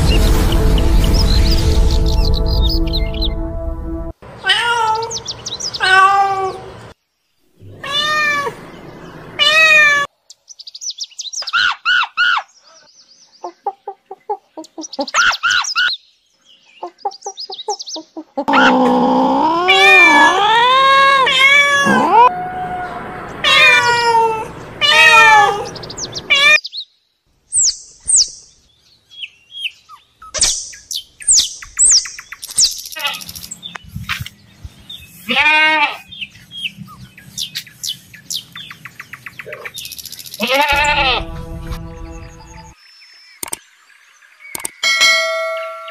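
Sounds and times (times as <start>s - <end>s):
cats meowing: 4.4s - 6.7s, 7.6s - 8.6s, 9.4s - 10.1s, 19.7s - 26.6s, 35.2s - 36.0s, 40.4s - 41.2s.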